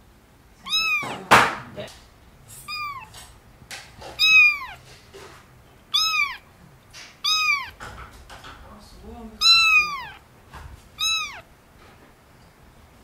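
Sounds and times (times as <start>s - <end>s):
kitten mewing: 0.6s - 3.3s, 4.0s - 5.0s, 5.9s - 7.9s, 9.3s - 10.3s, 11.0s - 11.5s.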